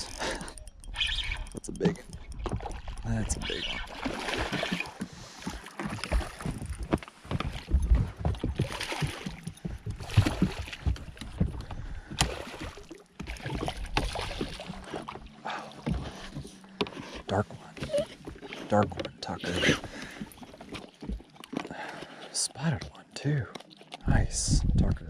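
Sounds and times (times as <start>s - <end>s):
fish splashing at surface: 3.8s - 6.6s.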